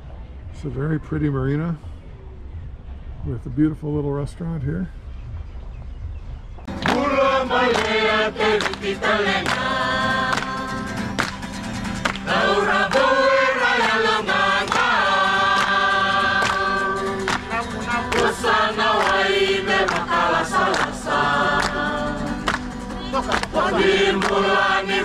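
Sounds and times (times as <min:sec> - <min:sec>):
group singing in harmony: 0:06.7 - 0:25.0
hand-clapping: 0:06.7 - 0:25.0
strummed acoustic guitar: 0:06.7 - 0:25.0.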